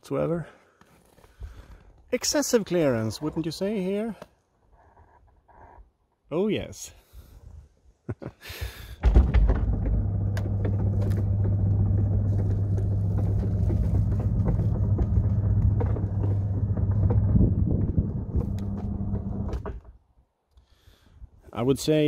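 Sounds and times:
drive motor humming: 0:09.2 - 0:19.8
roof rolling along rails: 0:09.2 - 0:19.8.

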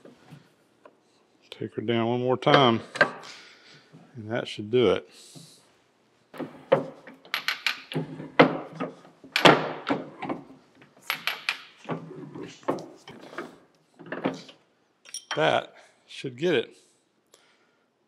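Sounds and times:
arbor press metallic clunks and creaks: 0:11.1 - 0:15.5.

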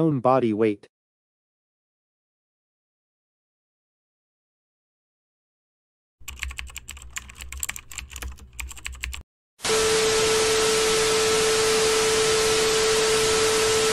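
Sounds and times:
keyboard typing clicks: 0:06.2 - 0:09.2.

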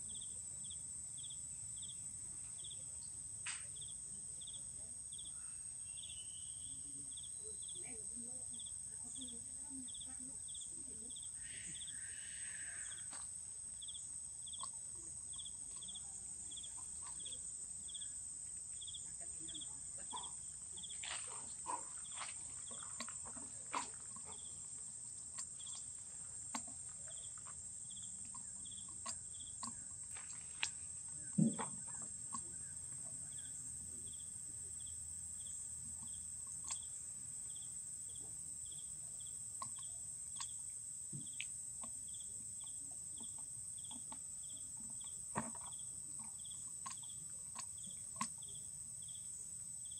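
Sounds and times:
insect chirping: 0:00.0 - 0:49.9
insects droning: 0:00.0 - 0:49.9
rustles in undergrowth: 0:20.8 - 0:24.1.

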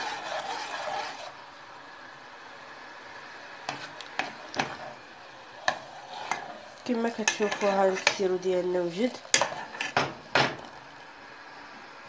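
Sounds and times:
metal spoon stirring in saucepan: 0:00.0 - 0:01.4, 0:03.6 - 0:10.8
steady low hiss: 0:00.0 - 0:12.0.

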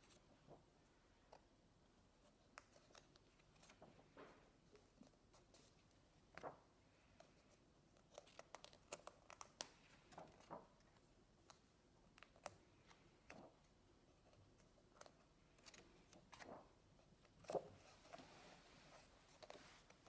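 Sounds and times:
paper pages turning: 0:02.5 - 0:13.7, 0:14.3 - 0:20.0
paper clicks and ticks: 0:08.0 - 0:13.5.

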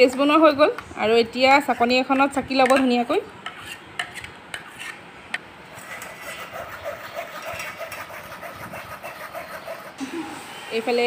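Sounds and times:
spoon scraping a mesh strainer: 0:03.4 - 0:05.0, 0:05.8 - 0:10.0.

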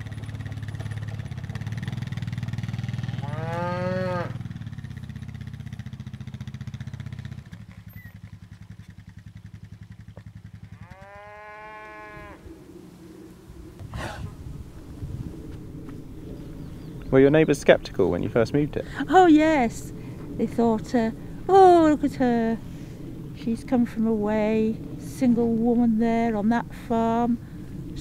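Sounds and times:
quad bike engine: 0:00.0 - 0:11.6
cattle mooing: 0:03.0 - 0:04.5, 0:10.6 - 0:12.5.

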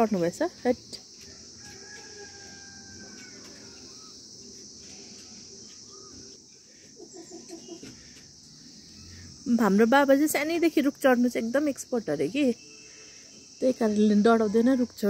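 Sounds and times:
high-pitched insect drone: 0:00.0 - 0:15.0
rooster crowing faintly: 0:01.2 - 0:04.2.

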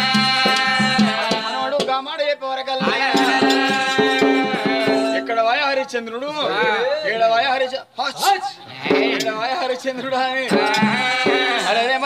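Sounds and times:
folk singing long notes: 0:00.0 - 0:02.0, 0:02.6 - 0:05.6, 0:10.4 - 0:12.0
drum beats and percussion: 0:00.0 - 0:05.9, 0:08.2 - 0:12.0.

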